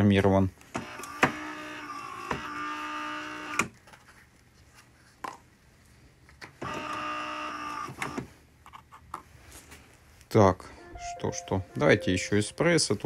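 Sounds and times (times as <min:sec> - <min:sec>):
espresso machine motor whirring: 0:00.8 - 0:03.6, 0:06.6 - 0:08.2.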